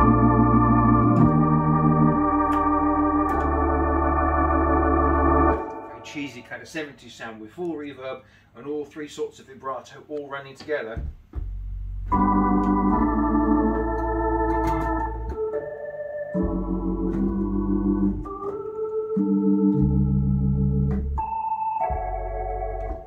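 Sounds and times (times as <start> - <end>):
organ playing held chords: 0.0 - 6.7, 11.6 - 23.0.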